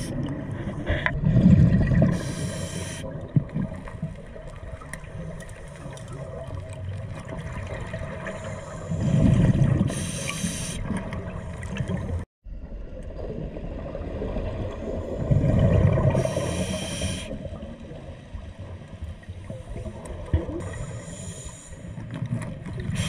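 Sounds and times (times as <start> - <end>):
regulator inhale hiss: 2.2 - 3.1, 9.9 - 10.9, 16.2 - 17.5, 20.6 - 22.0.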